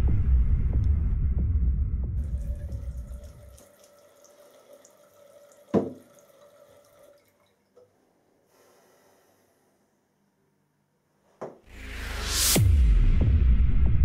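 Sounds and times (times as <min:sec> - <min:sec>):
low rumble: 0:00.0 - 0:03.2
tap running into sink: 0:02.2 - 0:07.1.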